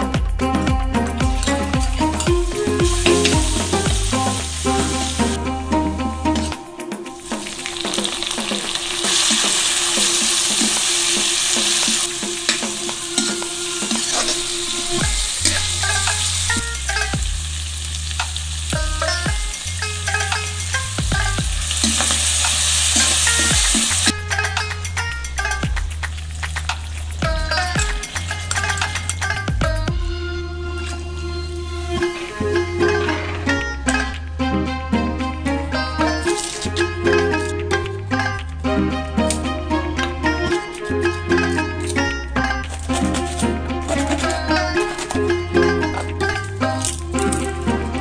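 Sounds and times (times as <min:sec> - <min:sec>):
background music: 0:00.0 - 0:48.0
food sizzling in a wok: 0:01.4 - 0:05.4, 0:07.2 - 0:24.2, 0:25.6 - 0:29.3, 0:36.2 - 0:36.8, 0:42.7 - 0:47.7
metal ladle scraping a pan: 0:01.4 - 0:18.0, 0:19.0 - 0:21.0, 0:21.6 - 0:29.4, 0:30.7 - 0:34.1, 0:35.8 - 0:48.0.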